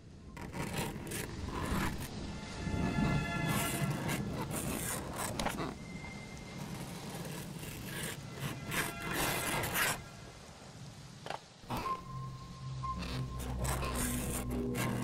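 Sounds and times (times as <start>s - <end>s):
scratchy rasping scrapes: 0.4s - 2.2s, 2.8s - 10.0s, 12.9s - 15.0s
dark ambient score: 1.2s - 7.1s, 11.6s - 15.0s.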